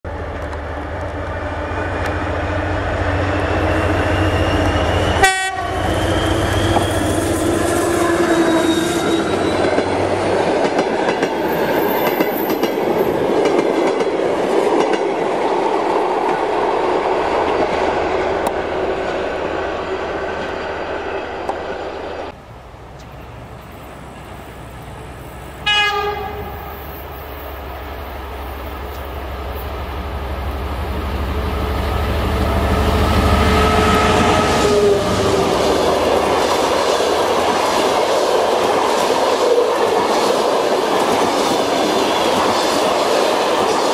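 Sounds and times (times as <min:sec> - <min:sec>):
diesel locomotive engine rumble: 0:00.1 - 0:43.7
train horn blast: 0:04.0 - 0:09.6, 0:25.6 - 0:26.8, 0:32.4 - 0:35.5.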